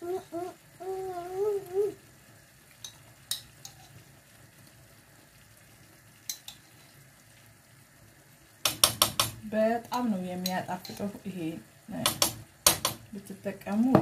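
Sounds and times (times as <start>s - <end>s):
tomato sauce simmering in a pan: 0.0s - 14.0s
spoon clattering against pan: 8.6s - 9.4s, 12.0s - 13.1s.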